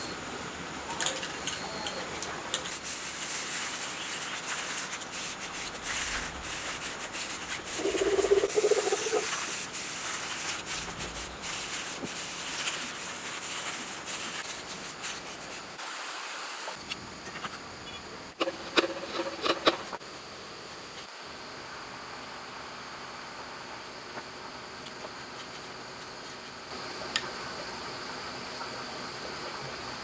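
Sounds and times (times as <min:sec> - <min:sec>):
spray can hissing: 0:02.6 - 0:16.1
spray can ball rattling: 0:06.0 - 0:10.4.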